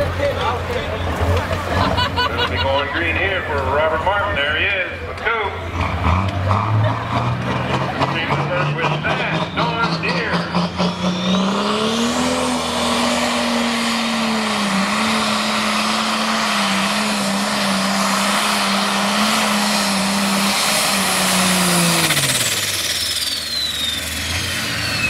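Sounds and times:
tractor engine running flat out: 0:18.4 - 0:25.0.

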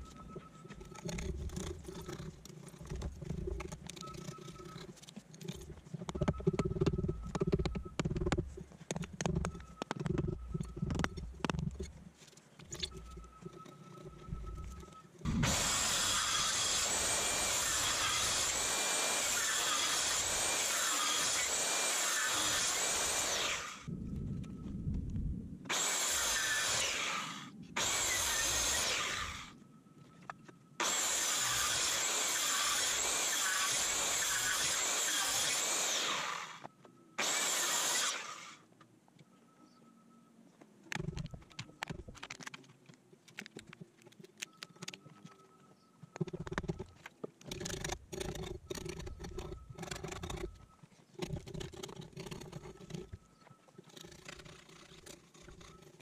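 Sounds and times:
electric power tool on wood: 0:15.3 - 0:23.9, 0:25.7 - 0:29.5, 0:30.8 - 0:38.6.

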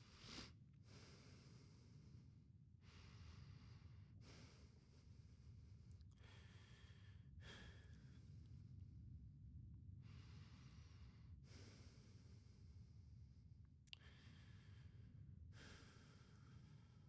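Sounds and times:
slow soft breathing: 0:00.0 - 0:09.2, 0:10.0 - 0:17.0
low steady room rumble: 0:00.0 - 0:17.0.

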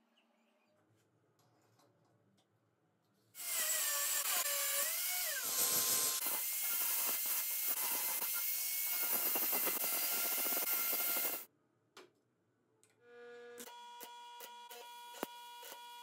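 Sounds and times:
angle grinder grinding steel: 0:03.4 - 0:11.5.

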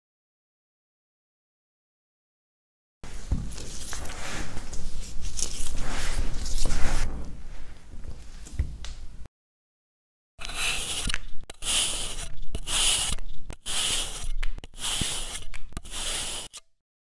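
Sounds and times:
blade scraping sand: 0:10.4 - 0:16.7.

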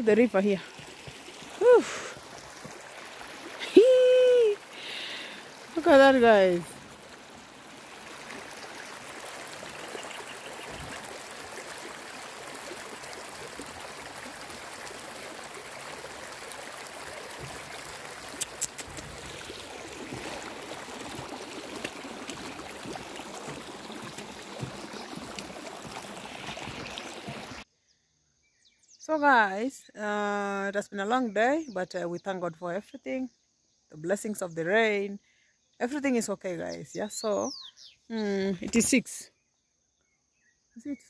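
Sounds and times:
water rushing over stones: 0:00.0 - 0:27.6.

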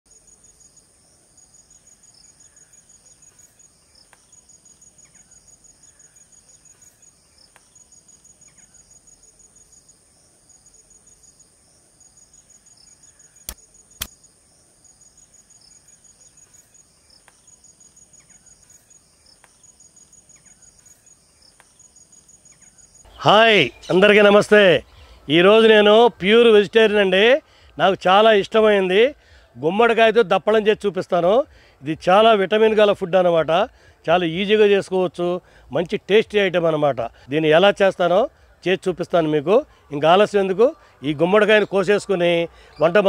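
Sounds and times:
insects chirping in trills: 0:00.1 - 0:43.0
sharp clicks: 0:13.4 - 0:14.2.

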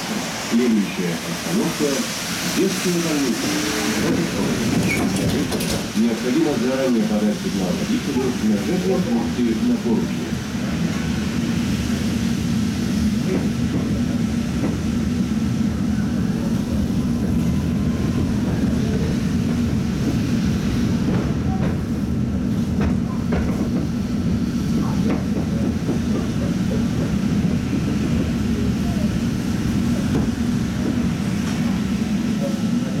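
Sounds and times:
tram wheels rumbling on rail: 0:00.0 - 0:33.0.

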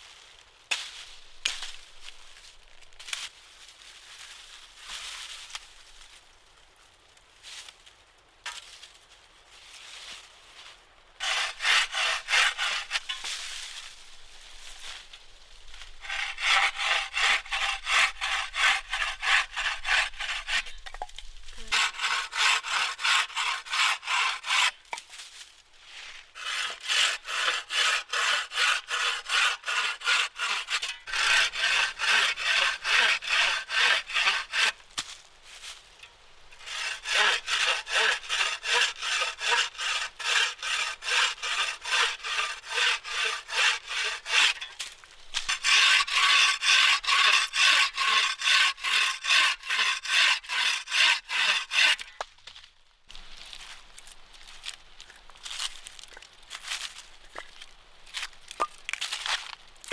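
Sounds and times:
saw cutting through logs: 0:11.2 - 0:13.7, 0:15.8 - 0:20.8, 0:21.6 - 0:24.9, 0:26.2 - 0:34.8, 0:36.5 - 0:52.2.

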